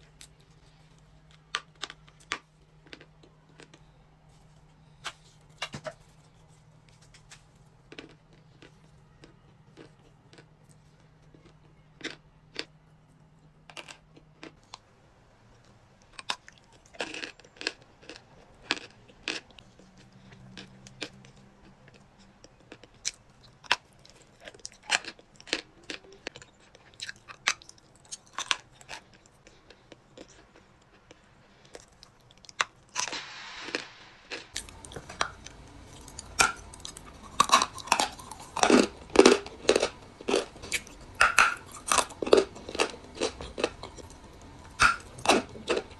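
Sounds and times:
crunchy chewing of dry clay: 0.0 - 14.9, 15.5 - 33.2, 34.3 - 45.9.

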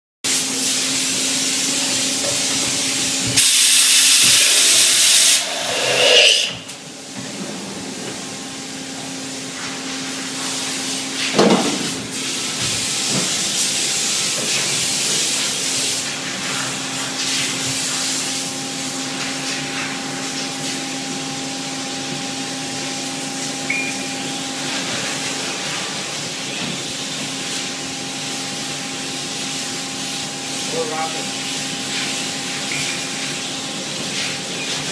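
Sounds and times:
machine humming and hissing: 0.3 - 34.9
loud air hiss burst: 3.0 - 6.7.

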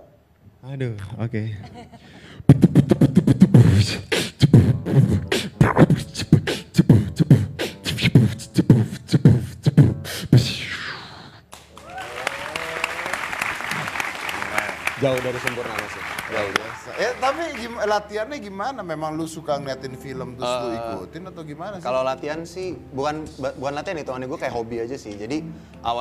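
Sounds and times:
person beatboxing: 2.5 - 11.4
audience applause and cheering: 11.5 - 18.0.

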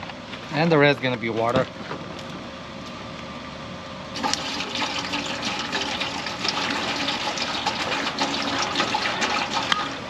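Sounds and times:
water pouring into a metal pot: 4.2 - 10.0.

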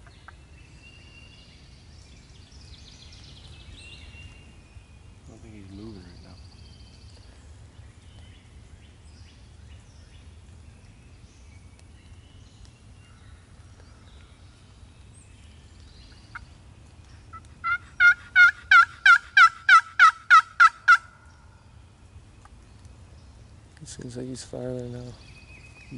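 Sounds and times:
turkey box call yelps: 17.3 - 21.2.

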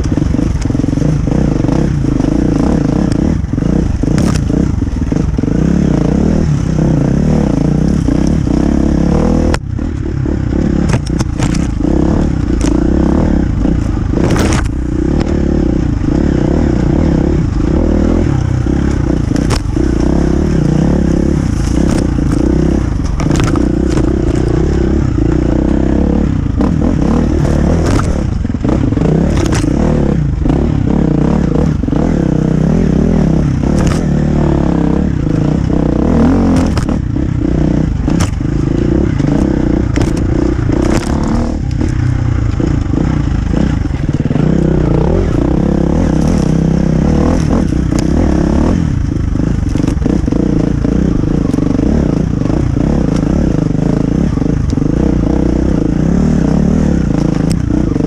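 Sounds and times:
motorcycle engine revving: 0.0 - 58.0
clatters and scrapes: 10.8 - 12.9, 13.6 - 15.4, 21.2 - 25.4, 27.2 - 28.4, 29.2 - 29.9, 33.7 - 34.1, 38.1 - 42.9, 43.6 - 48.2, 49.5 - 50.4.

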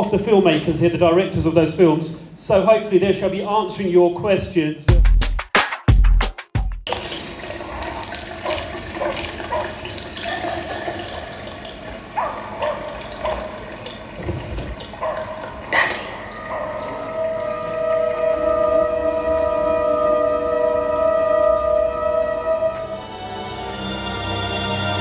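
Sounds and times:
water drips: 6.9 - 23.0
water running and gurgling: 6.9 - 23.0
wavering bubbling tones: 7.3 - 22.8.

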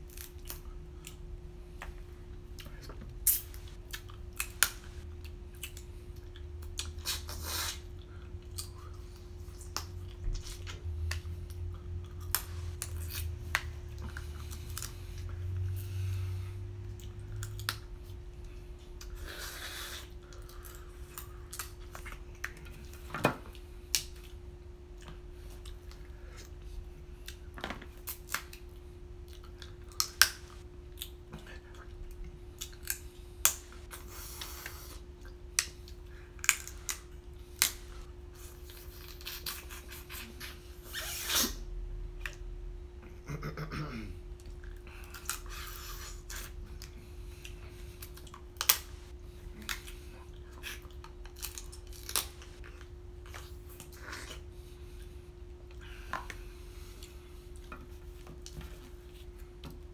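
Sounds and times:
faint hum: 0.0 - 59.9
crab shells cracking: 51.0 - 52.5.

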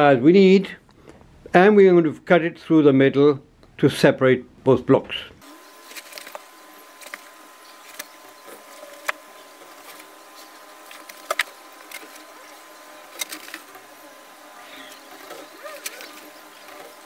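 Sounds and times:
faint high hum: 4.4 - 17.0.

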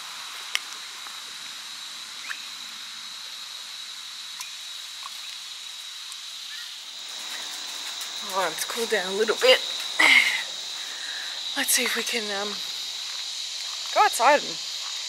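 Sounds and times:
high-pitched insect drone: 0.0 - 15.0
hiss: 0.0 - 15.0.

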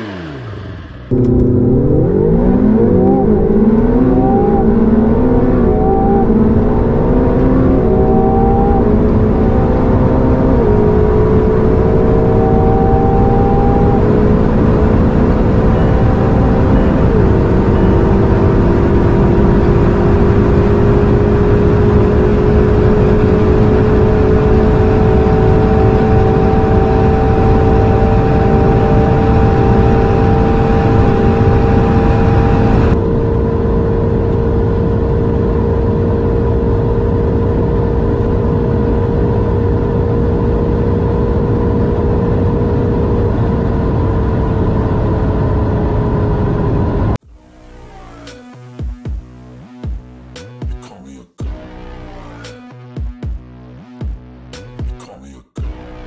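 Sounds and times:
car engine and road drone: 0.0 - 56.0.

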